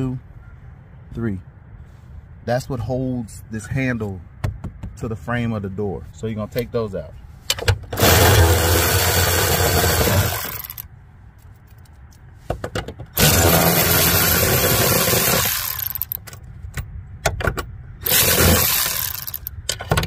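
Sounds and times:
electric ratchet spinning: 8.0 - 10.8, 13.2 - 16.2, 18.0 - 19.6.

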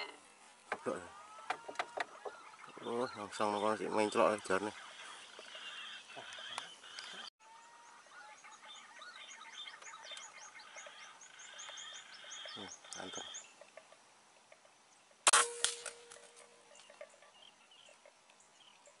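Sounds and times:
birds chirping: 0.0 - 19.0
rifle shot: 15.3 - 16.2.

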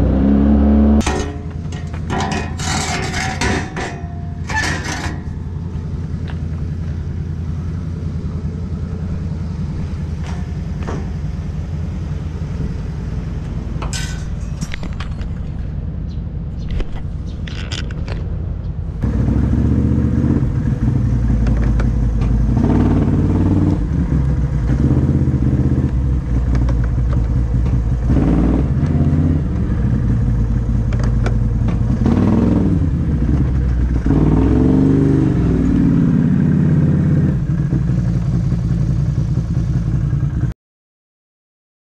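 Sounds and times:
atv engine revving: 0.0 - 2.2, 19.0 - 39.0.

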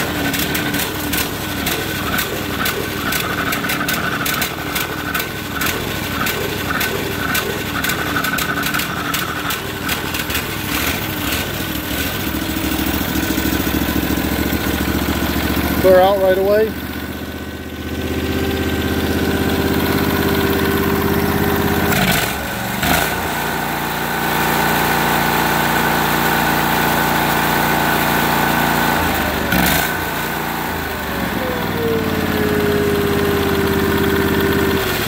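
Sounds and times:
tractor engine running unevenly: 0.0 - 35.0.

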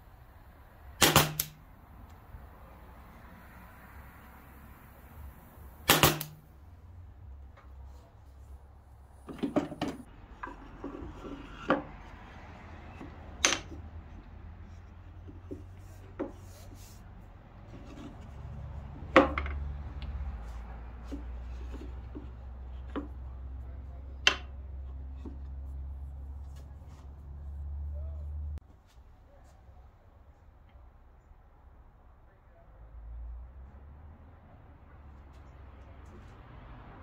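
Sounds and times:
nailer firing snap: 1.0 - 1.6, 5.8 - 6.4.

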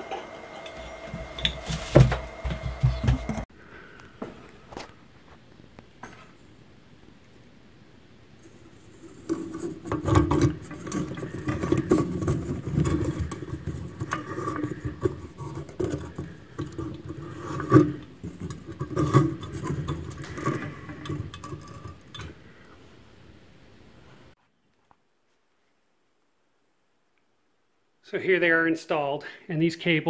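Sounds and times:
plastic scraping and clicking on fixture: 9.0 - 22.3.

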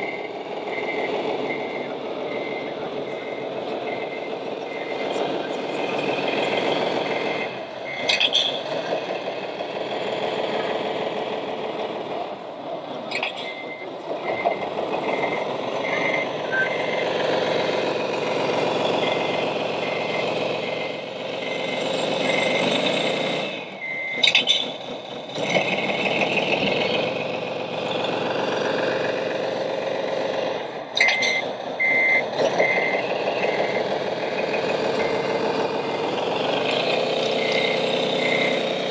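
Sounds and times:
reversing alarm beeps: 0.0 - 5.3, 6.7 - 8.4, 13.1 - 17.2, 18.9 - 24.5, 31.0 - 34.0, 34.9 - 35.4, 37.3 - 38.9
diesel engine sound: 0.0 - 38.9.

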